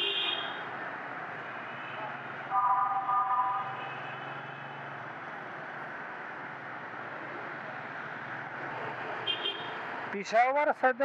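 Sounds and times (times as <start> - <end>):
motorcycle road noise: 0.0 - 11.0
vehicle horn: 2.5 - 4.4.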